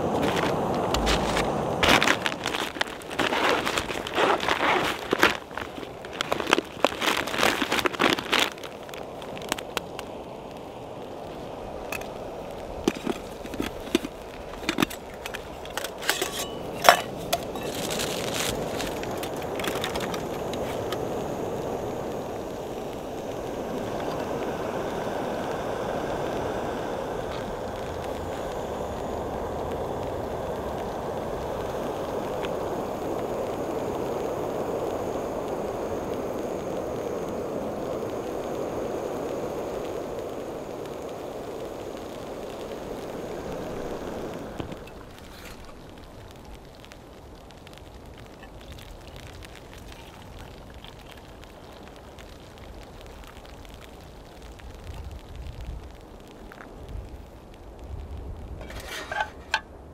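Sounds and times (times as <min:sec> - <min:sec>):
aluminium foil crackling: 0:00.0 - 0:24.5, 0:27.2 - 0:59.7
stuff sack crinkling: 0:00.1 - 0:09.7, 0:12.8 - 0:21.0, 0:44.8 - 0:46.1
gas stove hissing: 0:08.9 - 0:48.5.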